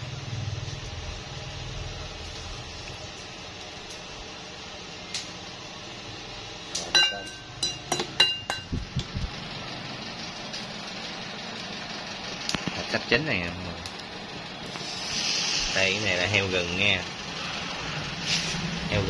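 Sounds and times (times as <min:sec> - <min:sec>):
ringing metallic clinks: 0:06.9 - 0:08.7.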